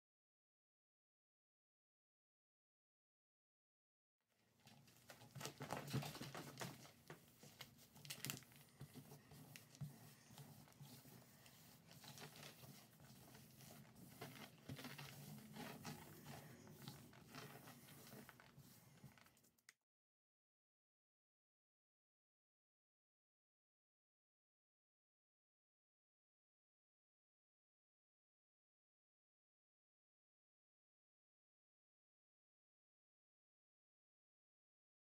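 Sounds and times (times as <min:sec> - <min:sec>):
hand rubbing powder on block: 0:06.7 - 0:19.5.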